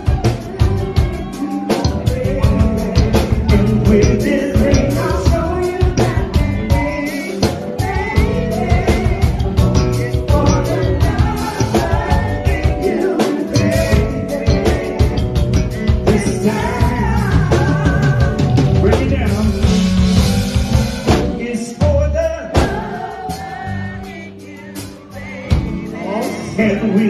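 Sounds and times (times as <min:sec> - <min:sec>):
live soul band playing: 0:00.0 - 0:27.0
people singing: 0:00.0 - 0:27.0.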